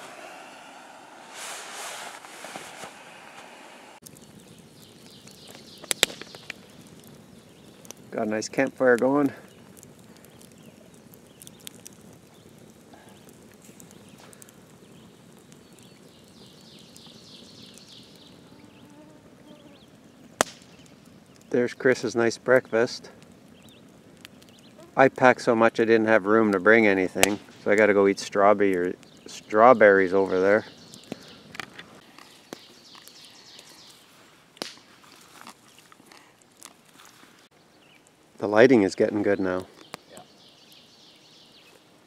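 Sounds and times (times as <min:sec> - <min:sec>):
birds singing: 0:04.0 - 0:22.8, 0:23.4 - 0:25.0, 0:28.3 - 0:31.5, 0:32.2 - 0:34.1, 0:37.4 - 0:41.8
bird singing falling notes: 0:04.1 - 0:07.8.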